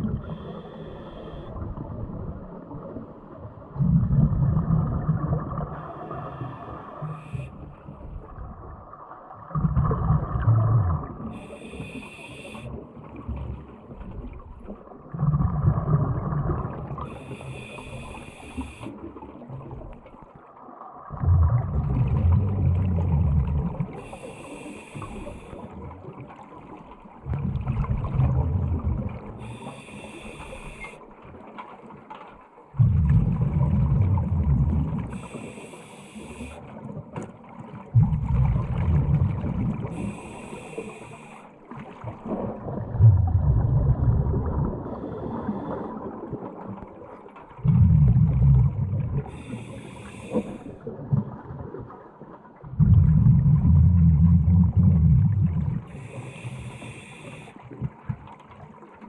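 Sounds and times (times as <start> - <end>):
exhaled bubbles gushing: 0.0 - 31.5, 32.7 - 59.0
hissing regulator inhalation: 11.4 - 12.7, 24.0 - 25.7, 29.4 - 31.0, 35.1 - 36.6, 39.9 - 41.5, 49.3 - 50.7, 55.9 - 57.6.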